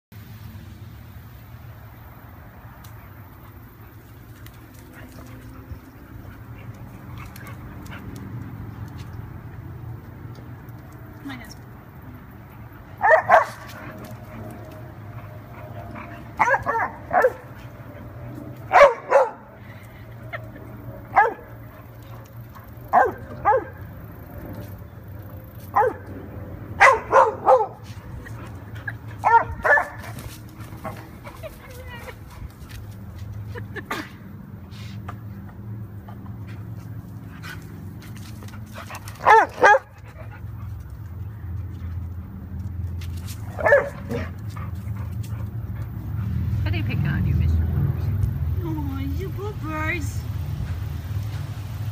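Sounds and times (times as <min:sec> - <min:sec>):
dog play-barking: 0:13.0 - 0:14.0, 0:15.6 - 0:17.6, 0:18.7 - 0:19.4, 0:22.6 - 0:23.8, 0:25.7 - 0:26.0, 0:26.8 - 0:27.8, 0:29.2 - 0:30.1, 0:39.2 - 0:39.9, 0:43.5 - 0:44.4.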